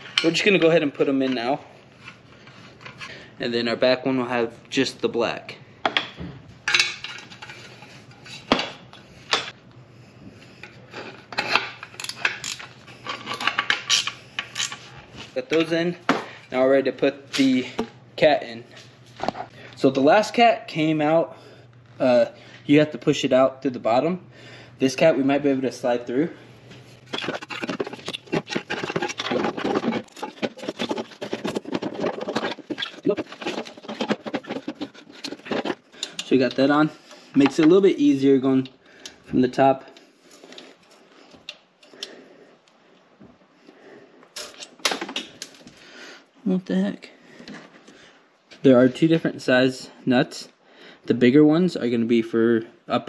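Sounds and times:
metal rubbing and scraping: 6.7s - 8.6s, 10.6s - 15.9s, 26.8s - 38.0s.

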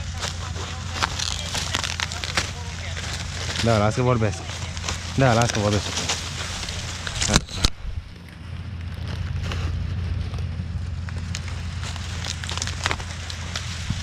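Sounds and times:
dry corn stalks crackling and rustling: 0.0s - 14.0s
tractor engine drone: 0.0s - 14.0s
sharp crack: 4.5s - 9.8s.

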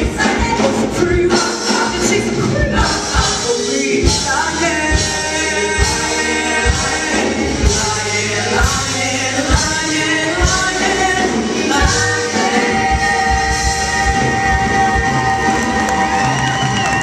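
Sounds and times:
band playing: 0.0s - 17.0s
group of voices singing: 0.0s - 17.0s.

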